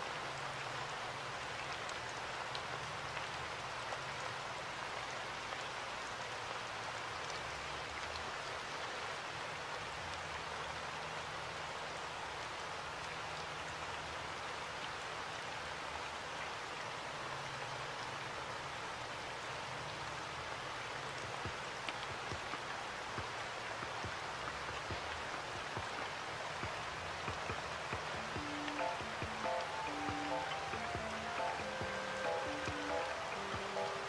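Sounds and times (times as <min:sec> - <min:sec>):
steady hiss: 0:19.7 - 0:34.0.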